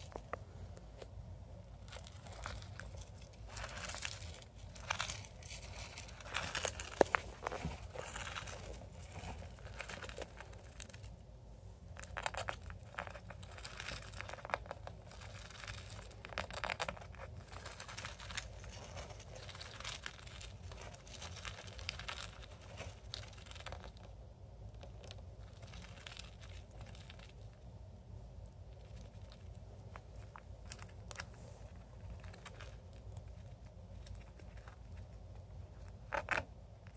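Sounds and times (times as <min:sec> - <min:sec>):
rodent rustling in bedding: 0:01.6 - 0:11.2, 0:12.0 - 0:24.0.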